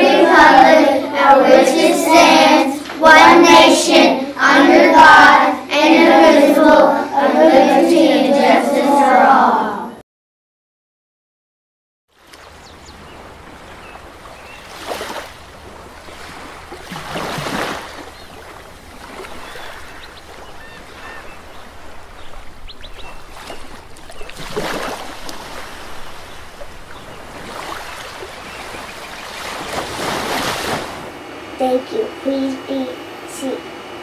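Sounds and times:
ocean waves breaking on beach: 12.2 - 31.6.

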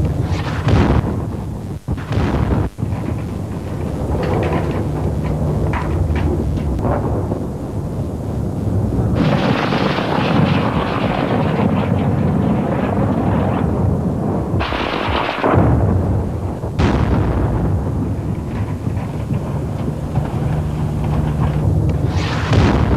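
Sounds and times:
gunfire: 0.0 - 7.0, 9.2 - 13.0, 16.8 - 22.9
constant low rumble: 0.0 - 22.9
rapid cracking: 0.0 - 22.9.

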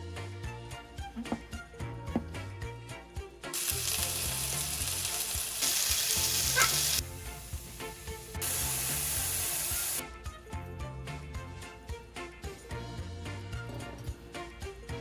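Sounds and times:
soft background music: 0.0 - 15.0
oil sizzling in a frying pan: 3.6 - 10.0.

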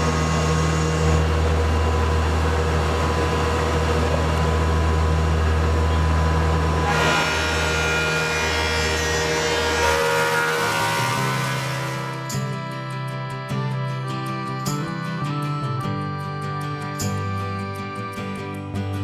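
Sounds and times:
planer cutting wood: 0.0 - 12.8
planer machine humming: 0.0 - 18.9.

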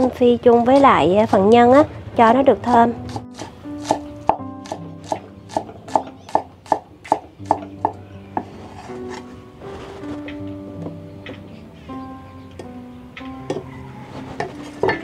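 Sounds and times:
cleaver chopping on wooden board: 3.1 - 8.5.

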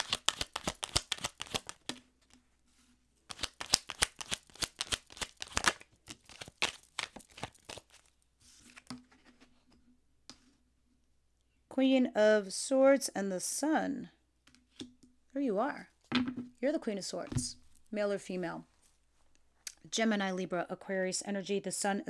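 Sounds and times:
cards being shuffled: 0.0 - 2.0, 3.3 - 9.2.

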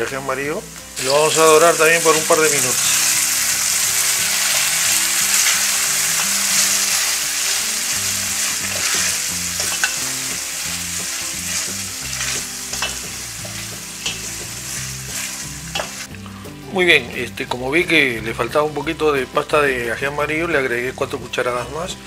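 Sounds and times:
food sizzling in hot oil: 0.0 - 16.6.

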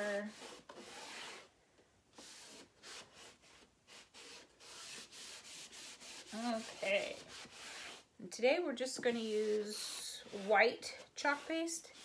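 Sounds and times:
cloth pad rubbing wax on wood: 2.2 - 8.1.

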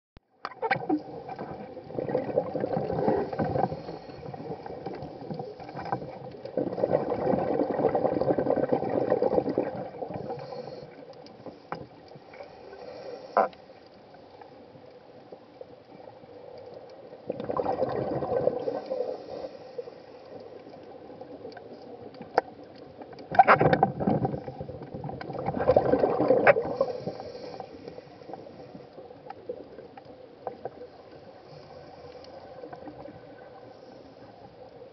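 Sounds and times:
underwater exhaled bubbles: 0.4 - 34.9.

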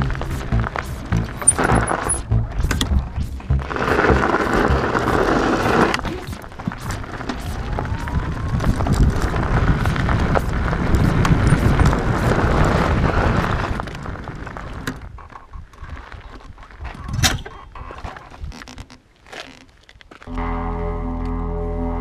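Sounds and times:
bicycle tyres crunching on gravel: 0.0 - 2.3, 3.3 - 15.2, 17.9 - 20.4
wind rumble on microphone: 0.0 - 18.9
bike rattling and knocking: 0.0 - 19.8.

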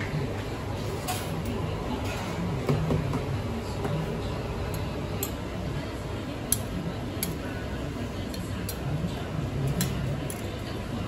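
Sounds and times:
background din with faint voices: 0.0 - 11.0.

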